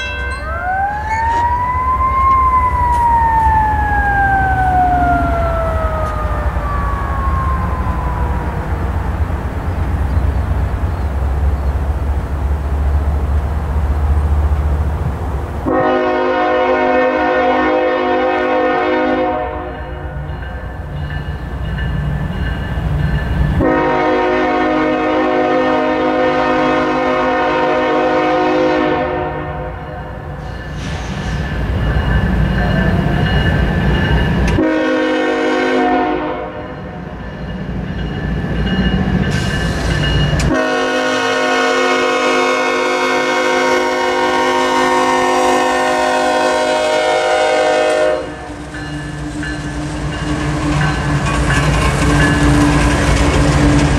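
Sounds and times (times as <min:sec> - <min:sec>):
crossing bell ringing: 0:00.0 - 0:02.3, 0:19.6 - 0:23.8, 0:29.6 - 0:34.8, 0:36.5 - 0:40.9, 0:48.2 - 0:53.5
locomotive air horn blasts: 0:15.7 - 0:19.9, 0:23.6 - 0:29.8, 0:34.6 - 0:36.7, 0:40.4 - 0:48.5.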